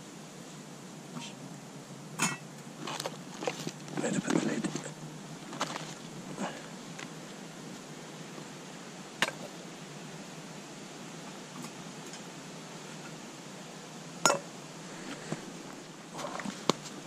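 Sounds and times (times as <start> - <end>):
faint steady hiss: 0.0 - 17.0
metal mugs clinking: 14.2 - 14.5.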